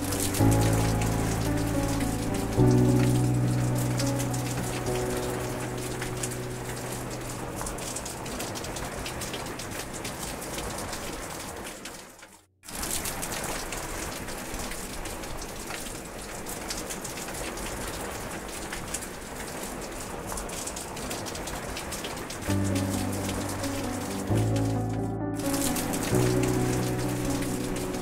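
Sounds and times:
steady rain falling: 0.0s - 28.0s.

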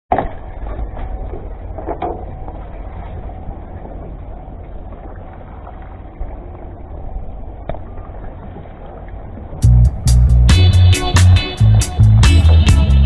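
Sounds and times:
water around boat: 0.1s - 13.0s
low rumble: 0.3s - 13.0s.

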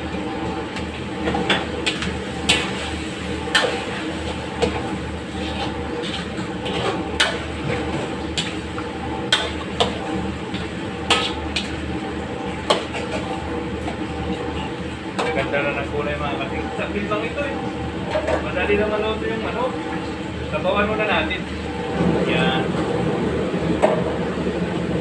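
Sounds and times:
metal spatula scraping a wok: 5.3s - 7.1s.

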